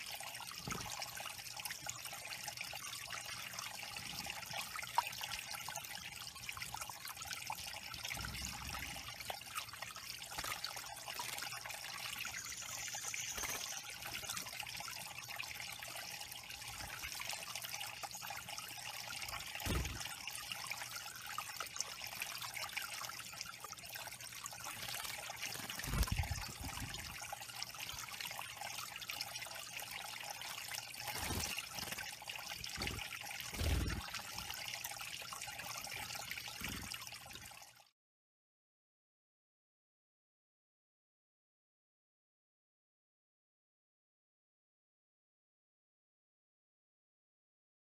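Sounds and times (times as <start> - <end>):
water trickling over rocks: 0.0 - 37.9
birds splashing in water: 7.5 - 23.5, 24.5 - 37.3.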